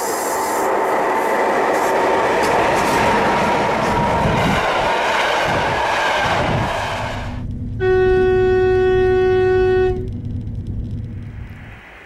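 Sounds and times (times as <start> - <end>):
train rushing past: 0.0 - 10.2, 10.8 - 12.0
low hum: 6.3 - 12.0
train horn steady tone: 6.4 - 10.2.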